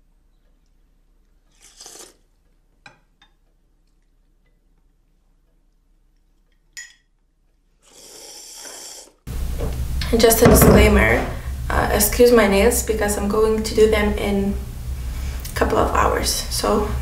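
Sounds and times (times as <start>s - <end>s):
spoons clinking against bowls: 6.8s - 7.1s.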